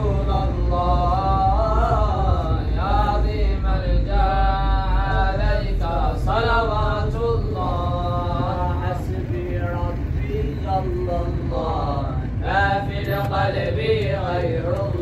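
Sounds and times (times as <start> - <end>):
car driving rumble: 0.0 - 15.0.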